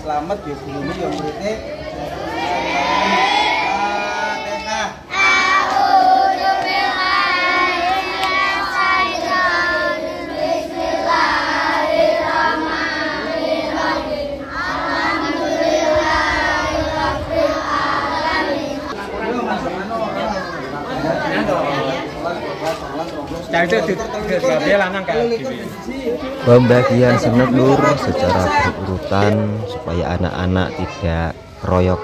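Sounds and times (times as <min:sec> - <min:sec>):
children singing in unison: 0:01.9 - 0:19.1.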